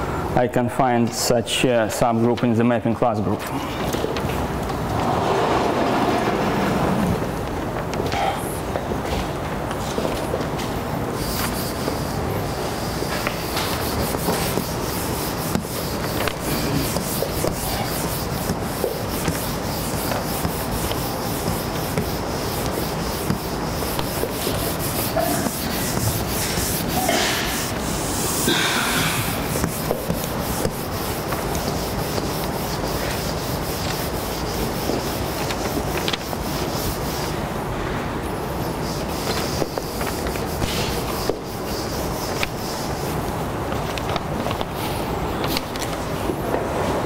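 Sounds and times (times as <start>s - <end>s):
cloth wiping a chalkboard: 9.2s - 37.5s, 38.4s - 46.4s.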